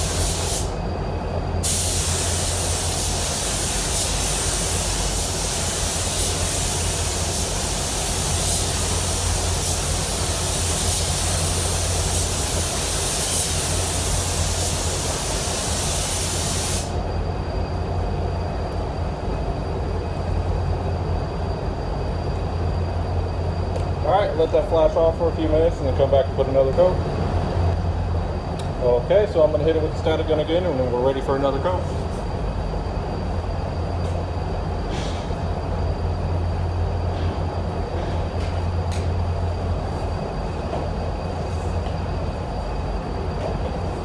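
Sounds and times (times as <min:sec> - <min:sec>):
paint spray gun hissing: 0:00.0 - 0:00.7, 0:01.6 - 0:17.0
ventilation hum: 0:00.0 - 0:44.0.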